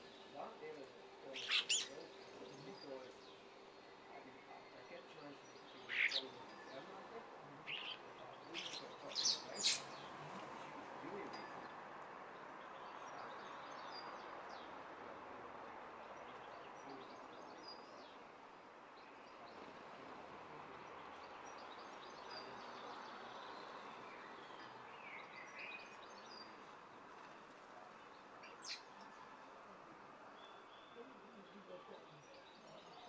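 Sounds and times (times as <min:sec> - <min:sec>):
low background hiss: 0:00.0 - 0:33.0
bird chirps: 0:01.3 - 0:03.4, 0:04.2 - 0:06.9, 0:07.6 - 0:10.1.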